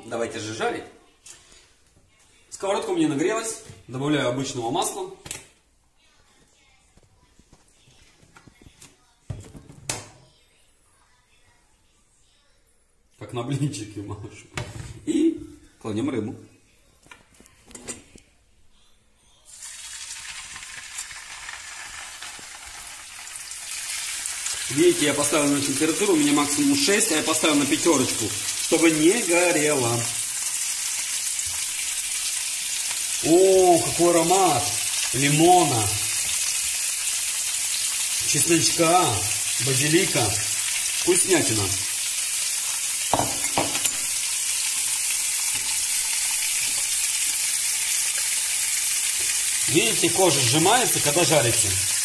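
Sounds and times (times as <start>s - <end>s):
oil crackles: 19.5s - 43.2s
fish sizzling in hot oil: 19.5s - 52.0s.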